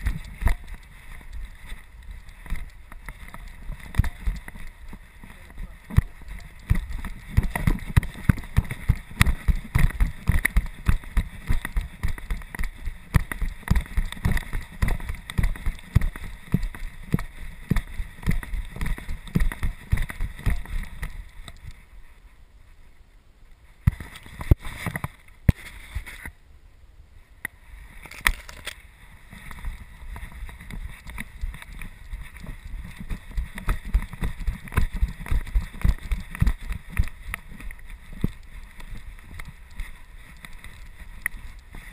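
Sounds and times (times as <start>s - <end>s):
sharp clicks: 0.0s - 4.8s.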